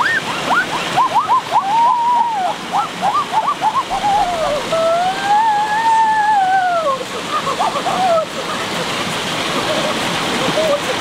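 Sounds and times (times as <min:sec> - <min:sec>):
long rising and falling call: 0:00.0 - 0:07.0
stream rushing: 0:00.0 - 0:11.0
person whooping: 0:00.5 - 0:08.3.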